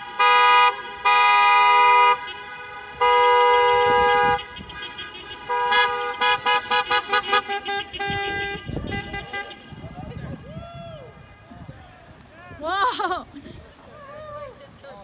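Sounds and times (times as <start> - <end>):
car horn honking: 0.0 - 10.0.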